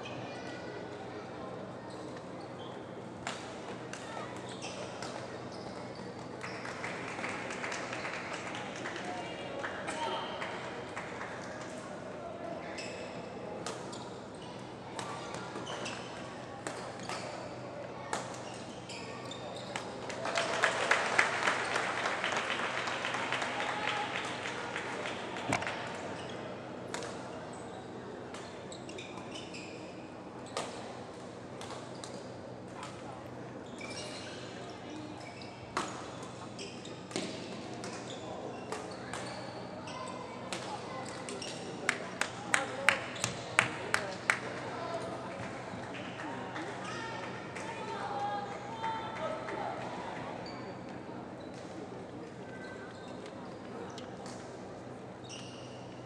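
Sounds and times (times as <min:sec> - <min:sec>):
court shoes squeaking: 0:04.3 - 0:06.8, 0:12.6 - 0:20.0, 0:25.5 - 0:30.8, 0:33.6 - 0:41.8, 0:43.1 - 0:43.7, 0:50.4 - 0:56.0.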